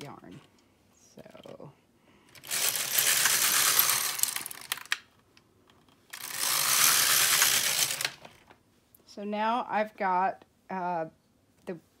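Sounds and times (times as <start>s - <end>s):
knitting machine carriage rattling: 2.4s - 5.0s, 6.1s - 8.5s.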